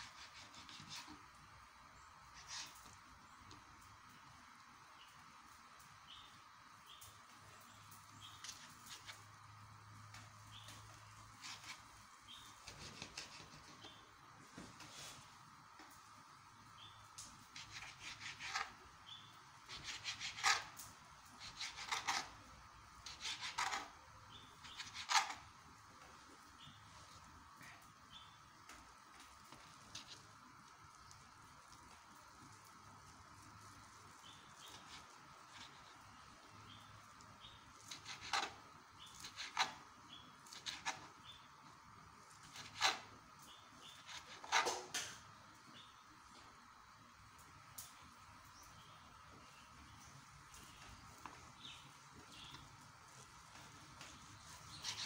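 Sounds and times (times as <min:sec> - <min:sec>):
knife scraping on cutting board: 0:11.4 - 0:11.8, 0:12.6 - 0:13.9, 0:17.6 - 0:18.8, 0:19.7 - 0:20.8, 0:21.4 - 0:22.3, 0:23.0 - 0:23.9, 0:42.4 - 0:43.0, 0:43.8 - 0:45.0, 0:54.7 - 0:55.0.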